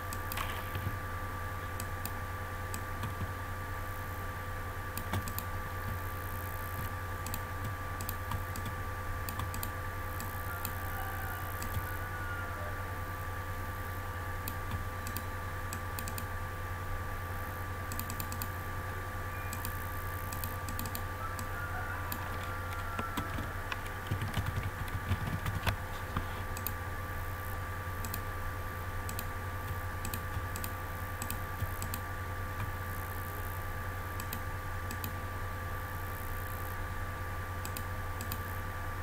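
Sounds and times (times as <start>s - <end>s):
low electrical hum: 0.0s - 39.0s
computer keyboard typing: 2.8s - 3.3s, 5.0s - 6.1s, 6.7s - 10.8s, 11.5s - 11.9s, 14.4s - 16.3s, 17.9s - 18.6s, 19.5s - 21.5s, 22.1s - 26.8s, 28.0s - 28.2s, 29.1s - 32.0s.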